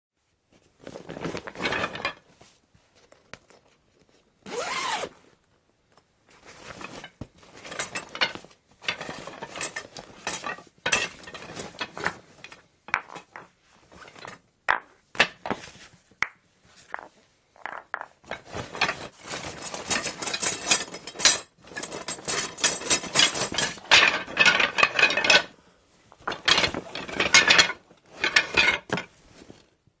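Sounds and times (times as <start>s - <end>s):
gear clattering in a bag: 18.3s - 25.5s.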